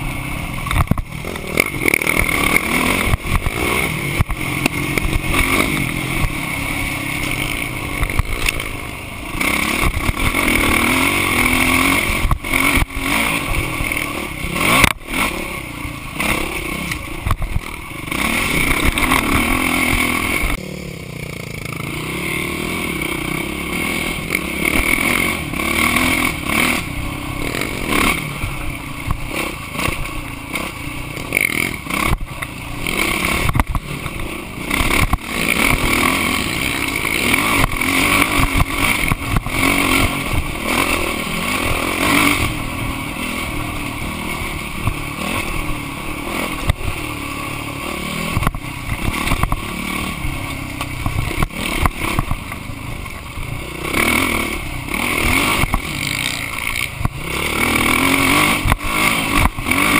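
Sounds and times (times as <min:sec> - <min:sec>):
bike rattling over bumps: 0:00.0 - 0:59.9
dirt bike engine revving: 0:00.0 - 0:59.9.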